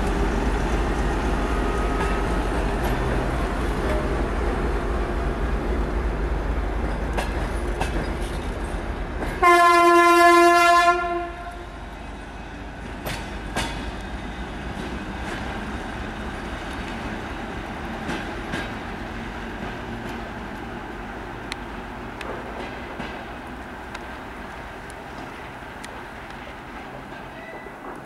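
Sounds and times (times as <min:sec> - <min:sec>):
locomotive horn blast: 0:09.4 - 0:11.8.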